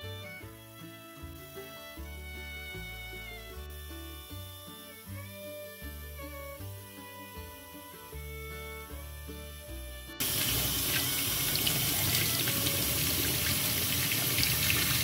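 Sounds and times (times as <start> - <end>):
background music: 0.0 - 15.0
tap water running into sink: 10.2 - 15.0.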